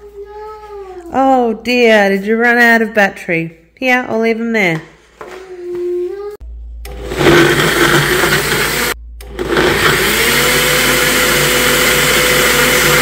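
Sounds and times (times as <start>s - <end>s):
blender whirring: 6.9s - 13.0s.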